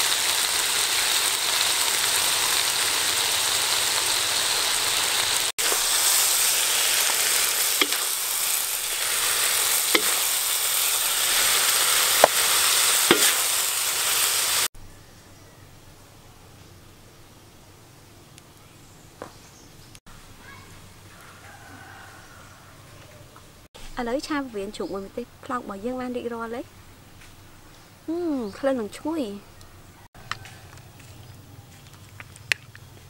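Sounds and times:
food sizzling in a wok: 0.0s - 14.7s.

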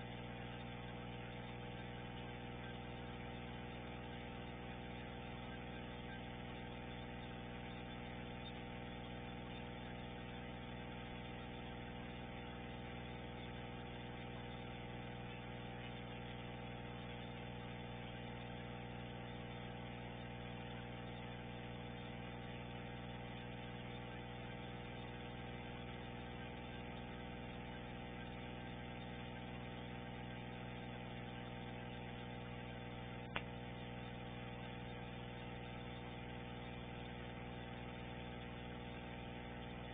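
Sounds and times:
steady hum with overtones: 0.0s - 39.9s
short click: 33.3s - 33.5s.

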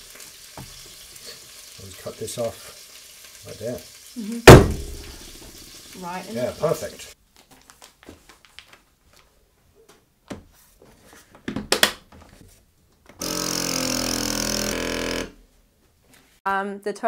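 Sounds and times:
plastic bag rustling: 6.4s - 9.3s.

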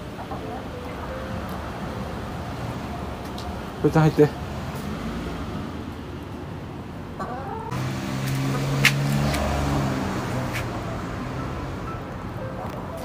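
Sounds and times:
hens clucking: 0.0s - 1.6s, 7.1s - 9.4s.

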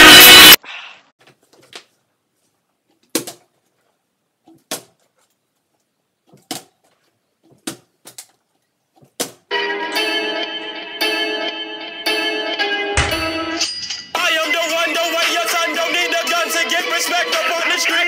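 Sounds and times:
background music: 9.5s - 18.0s.

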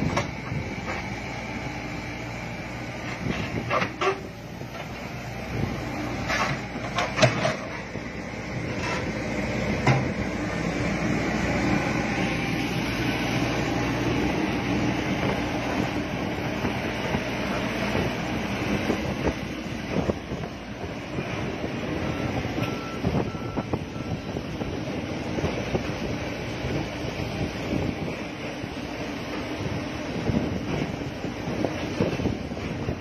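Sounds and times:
excavator tracks clanking: 0.0s - 1.2s, 2.9s - 10.3s, 13.9s - 33.0s
diesel engine running: 0.0s - 33.0s.

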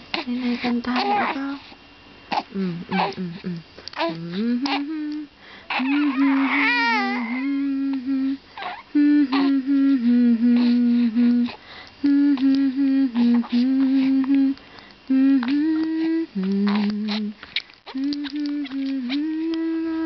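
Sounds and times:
adult humming a lullaby: 0.0s - 20.0s
baby crying: 5.7s - 7.5s.

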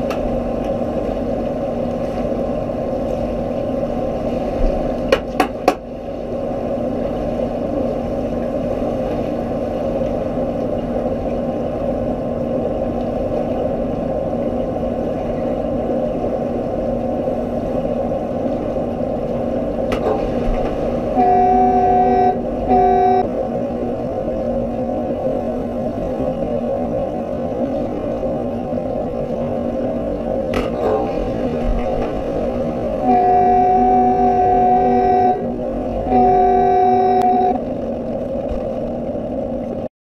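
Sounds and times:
underwater rumble: 0.0s - 39.9s
underwater signal horn blasts: 21.0s - 23.5s, 32.9s - 37.7s.

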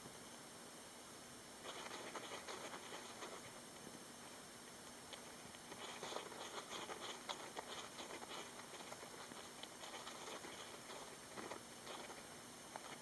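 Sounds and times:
hamster scratching in sand: 1.6s - 3.6s, 5.6s - 13.0s.

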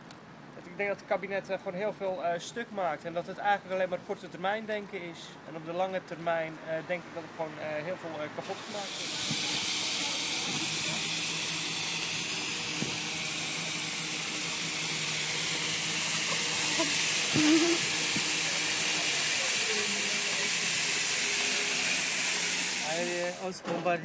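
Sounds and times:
flares burning with a hiss: 8.5s - 23.5s.

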